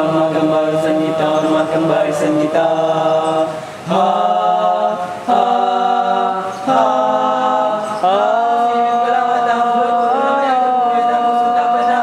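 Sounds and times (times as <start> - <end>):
male voices singing a cappella: 0.0 - 12.0.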